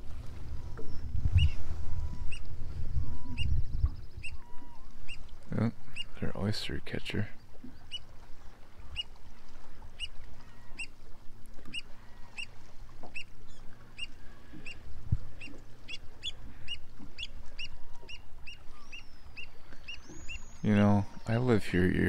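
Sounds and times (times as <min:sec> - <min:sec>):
low rumble: 0:00.0 - 0:06.4
bird piping calls: 0:00.5 - 0:21.8.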